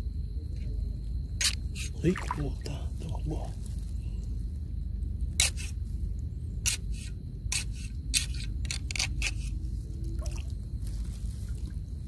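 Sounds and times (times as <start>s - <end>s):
steady low rumble: 0.0s - 12.0s
splashes in shallow water: 2.1s - 2.6s.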